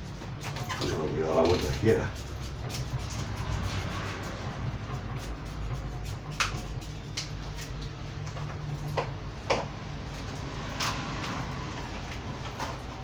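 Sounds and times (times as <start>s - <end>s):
steady low hum: 0.0s - 13.0s
scraping soil off roots: 0.4s - 8.7s.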